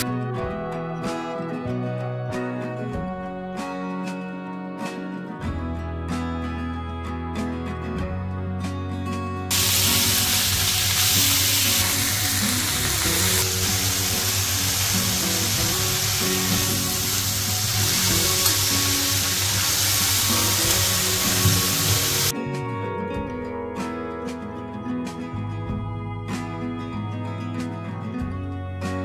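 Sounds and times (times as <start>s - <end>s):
soft background music: 0.0s - 29.0s
vegetables sizzling in hot oil: 9.5s - 22.3s.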